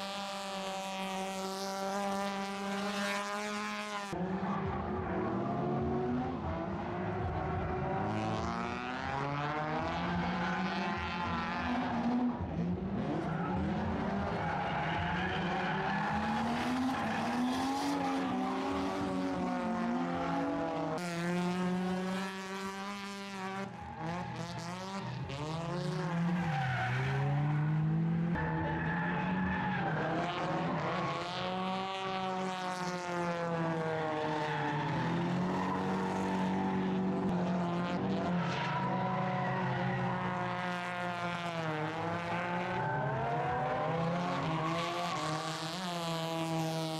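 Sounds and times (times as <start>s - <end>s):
car engines revving: 0.0s - 46.9s
tyres squealing and skidding: 9.6s - 12.3s, 13.0s - 20.7s, 23.4s - 31.7s, 33.7s - 37.3s, 38.0s - 41.1s, 42.0s - 46.5s.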